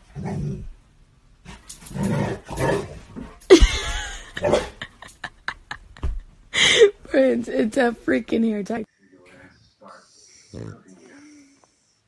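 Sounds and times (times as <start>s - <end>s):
dog growling and barking: 0.0s - 0.8s, 1.5s - 3.4s, 4.4s - 4.9s, 10.5s - 10.9s.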